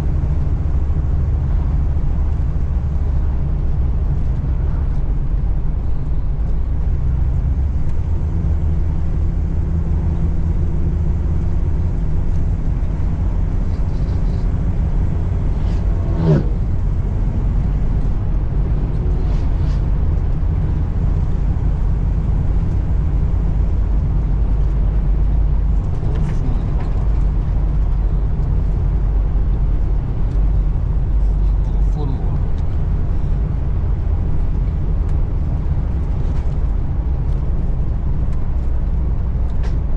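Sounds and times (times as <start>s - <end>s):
road and engine rumble: 0.0s - 39.9s.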